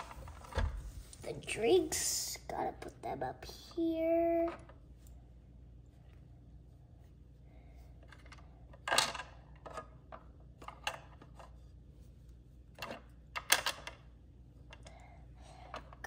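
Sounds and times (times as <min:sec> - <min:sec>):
plastic toys clicking and clattering: 0:08.0 - 0:11.6, 0:12.7 - 0:14.1.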